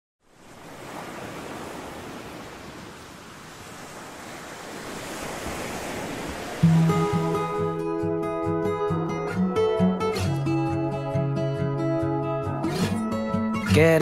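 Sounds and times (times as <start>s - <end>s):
ocean surf on shore: 0.2s - 14.0s
strummed guitar music: 6.6s - 14.0s.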